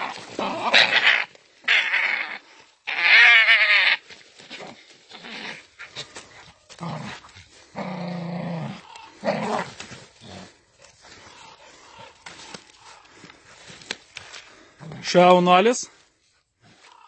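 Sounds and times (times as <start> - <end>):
high-pitched animal cries: 0.6 - 4.0
dogs growling: 4.5 - 13.7.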